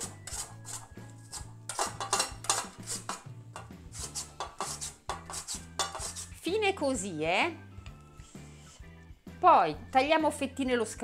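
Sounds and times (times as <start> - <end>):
potato scraping on grater: 0.0 - 3.2, 3.8 - 6.4
background music: 0.0 - 11.0.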